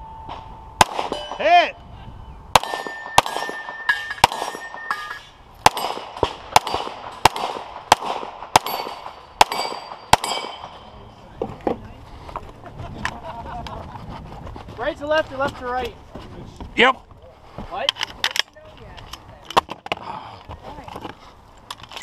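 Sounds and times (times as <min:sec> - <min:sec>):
metallic ring of steel targets: 0:00.0 - 0:01.7, 0:02.6 - 0:07.3, 0:08.6 - 0:11.2
rapid pistol fire: 0:00.8 - 0:01.2, 0:02.6 - 0:04.8, 0:05.6 - 0:10.7.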